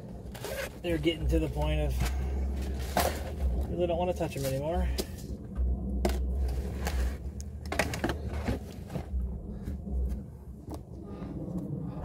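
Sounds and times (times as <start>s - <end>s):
camera handling rumble: 5.0s - 10.9s.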